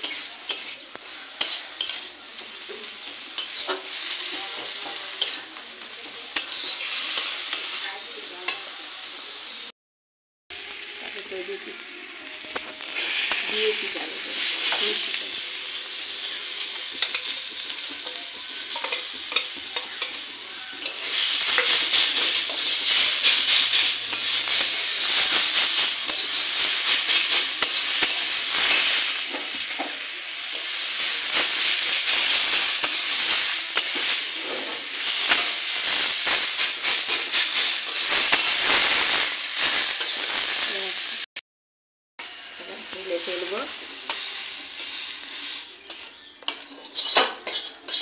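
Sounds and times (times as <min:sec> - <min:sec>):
spatula scraping pan: 0:00.0 - 0:05.5, 0:06.3 - 0:07.8, 0:16.7 - 0:39.2, 0:44.0 - 0:48.0
greens sizzling in pan: 0:00.0 - 0:09.7, 0:10.5 - 0:41.3, 0:42.2 - 0:48.0.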